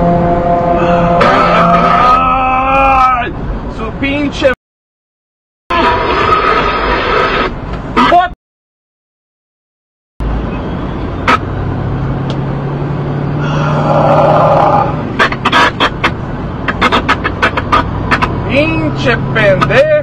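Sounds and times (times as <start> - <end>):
truck engine hum: 0.0 - 4.6, 10.2 - 20.0.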